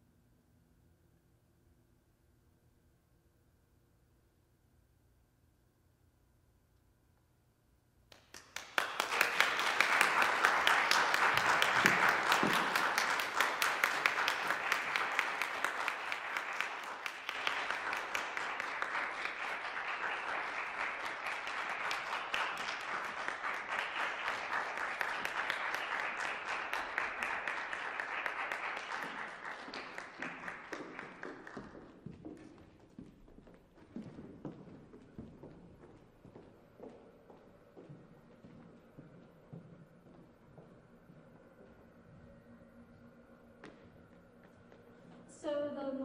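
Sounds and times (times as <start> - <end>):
audience applauding: 8.1 - 32.1.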